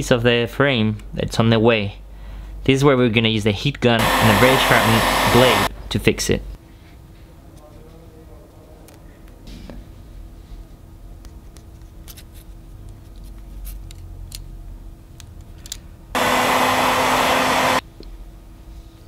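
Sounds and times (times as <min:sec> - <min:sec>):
heat gun blowing hot air: 0:04.0 - 0:05.7, 0:16.2 - 0:17.8.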